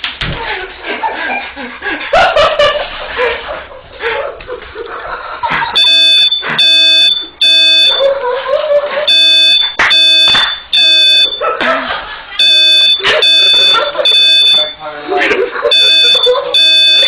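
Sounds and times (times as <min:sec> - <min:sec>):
buzzy electronic alarm beeps: 0:05.6 - 0:08.1, 0:09.1 - 0:11.4, 0:12.4 - 0:14.9, 0:15.6 - 0:17.0.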